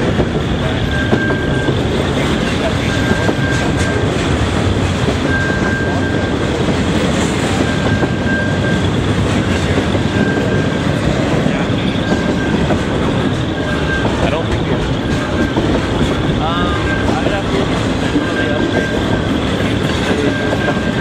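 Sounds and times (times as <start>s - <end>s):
train wheels rumbling on rails: 0.0s - 21.0s
thin high wheel squeal: 5.2s - 21.0s.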